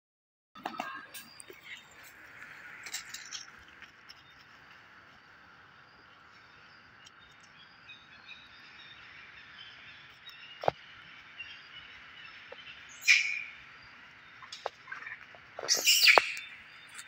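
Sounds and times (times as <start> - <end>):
faint bird chirps: 5.7 - 17.0.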